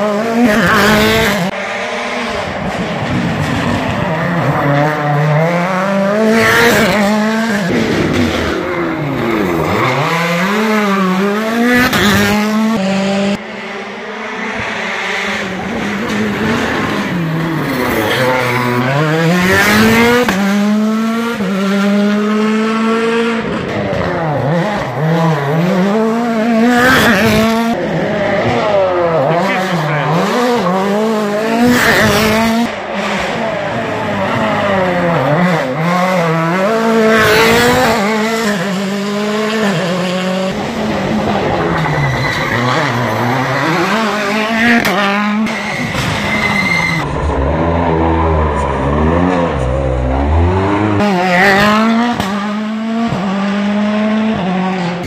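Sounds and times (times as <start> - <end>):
rally car engines revving: 0.0 - 55.0.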